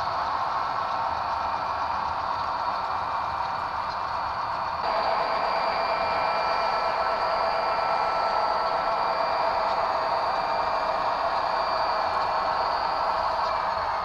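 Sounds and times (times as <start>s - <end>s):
model train hissing drone: 0.0s - 14.0s
faint high whines: 4.8s - 14.0s.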